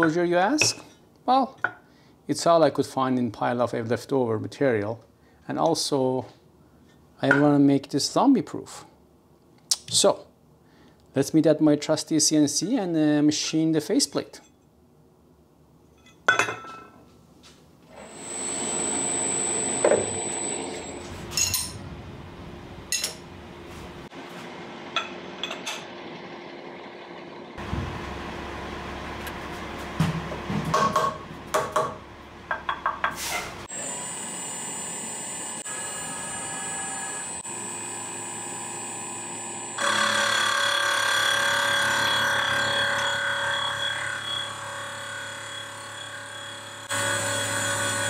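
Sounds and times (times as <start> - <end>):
machine whine: 17.9 - 30.6, 33.7 - 48.0
machine hum with high tone: 17.9 - 32.7, 33.6 - 48.0.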